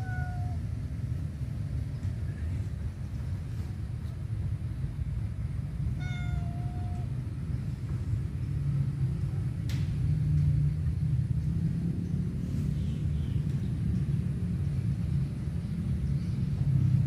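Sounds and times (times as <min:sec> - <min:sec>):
cat meowing: 0:00.0 - 0:00.7, 0:05.9 - 0:07.2.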